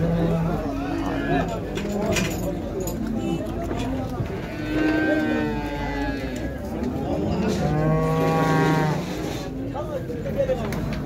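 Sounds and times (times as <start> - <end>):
bulls mooing: 4.4 - 9.4.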